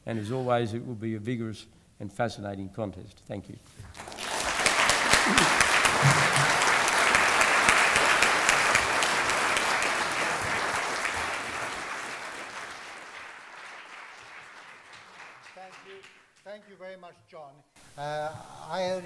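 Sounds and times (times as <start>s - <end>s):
audience applauding: 3.8s - 16.5s.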